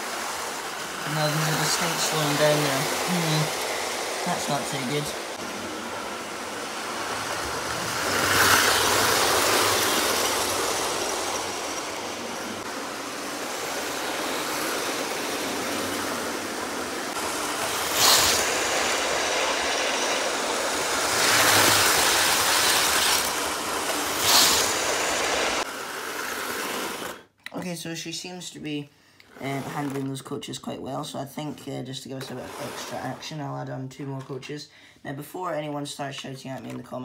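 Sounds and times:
wheels clicking on track joints: 0.0 - 25.7
model train motor whirring: 0.0 - 27.3.

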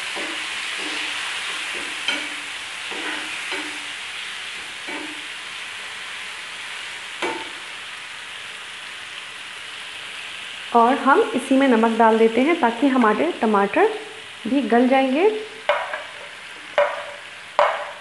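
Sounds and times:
tomatoes sizzling in hot oil: 0.0 - 18.0
ladle scraping and knocking pan: 0.1 - 3.8, 4.8 - 5.2, 15.7 - 18.0.

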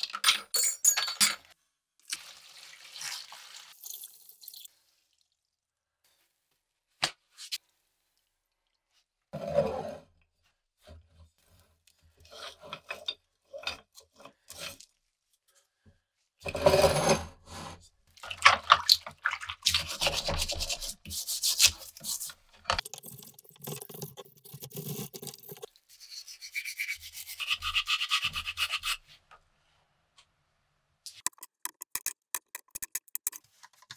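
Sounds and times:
brush scrubbing metal in water: 19.2 - 29.0
bottle brush scrubbing inside: 19.6 - 29.2.

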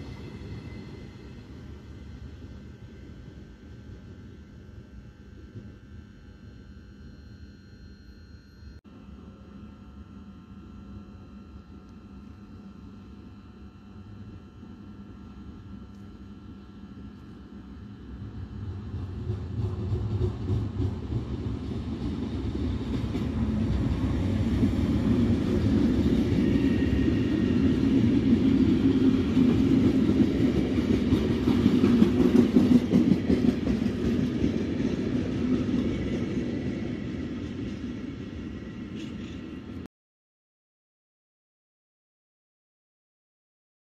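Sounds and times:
freight train passing: 0.0 - 5.7, 16.4 - 39.9
wagons rumbling and rattling on rails: 18.2 - 39.7.

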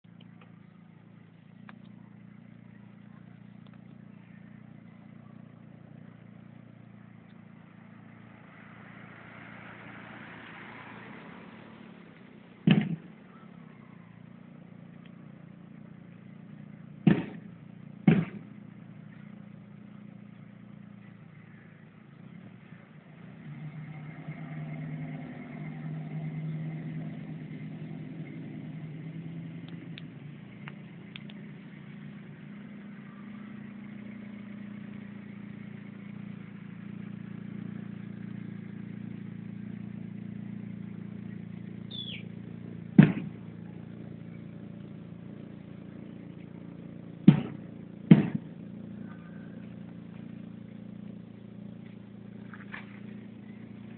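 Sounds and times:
car engine running: 0.0 - 53.9
sharp knocks: 12.6 - 13.1, 17.0 - 18.5, 43.0 - 43.4, 47.3 - 48.5.

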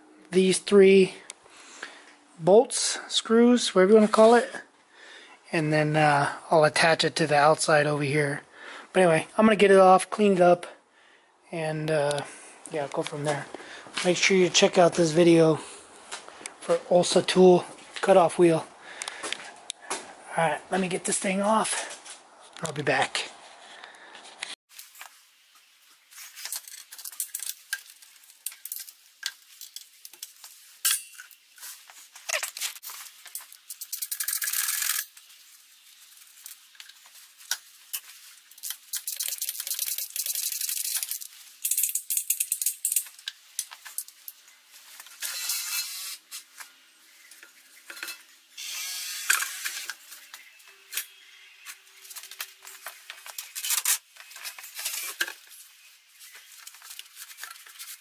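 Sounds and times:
wrench clinking on metal: 30.8 - 31.4.

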